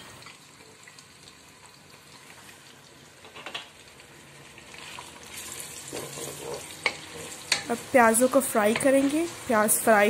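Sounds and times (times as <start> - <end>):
onions sizzling in hot oil: 0.0 - 10.0
wooden spatula stirring: 5.3 - 7.7.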